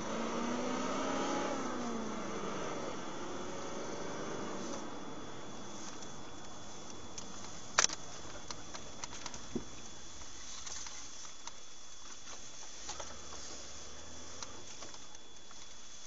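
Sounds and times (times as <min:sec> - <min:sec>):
vehicle interior hiss: 0:00.0 - 0:11.4, 0:12.2 - 0:16.0
faint high whine: 0:00.0 - 0:16.0.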